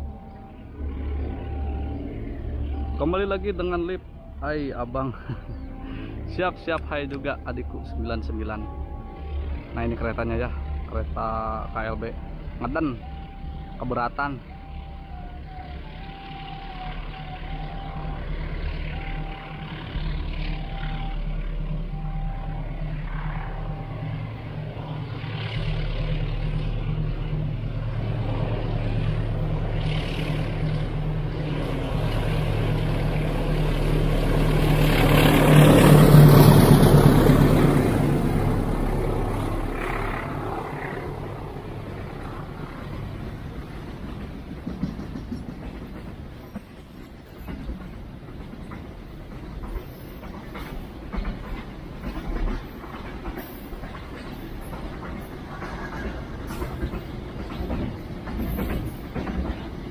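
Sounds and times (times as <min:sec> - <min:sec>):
freight wagons rumbling by: 0:00.0 - 0:59.9
locomotive engine drone: 0:00.0 - 0:59.9.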